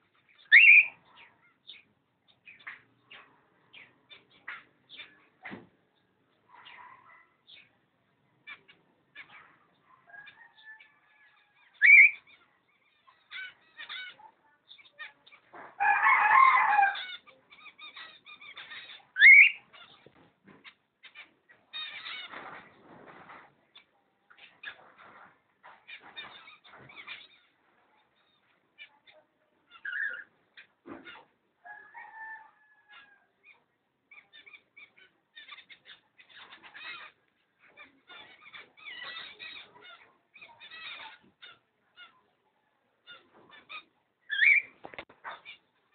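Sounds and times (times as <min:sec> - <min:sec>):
cockatiels calling: 0:00.2 - 0:01.8, 0:10.2 - 0:22.6, 0:28.2 - 0:31.3, 0:32.0 - 0:42.2, 0:43.0 - 0:45.9.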